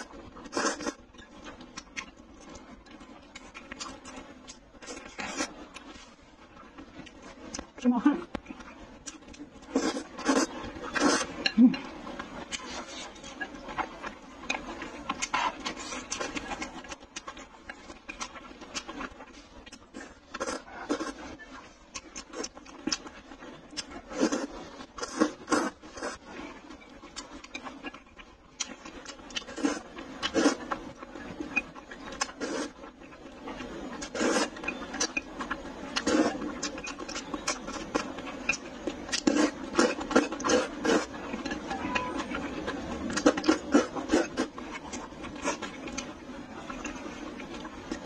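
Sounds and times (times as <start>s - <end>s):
person slurping noodles: 0.0s - 1.0s, 9.6s - 11.5s, 24.1s - 26.2s, 34.0s - 34.5s, 36.0s - 36.5s, 39.2s - 41.1s.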